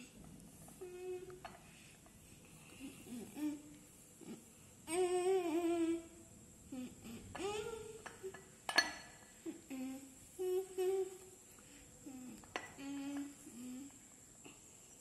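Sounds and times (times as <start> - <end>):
person humming: 0.8 - 1.5, 2.6 - 8.4, 9.4 - 14.7.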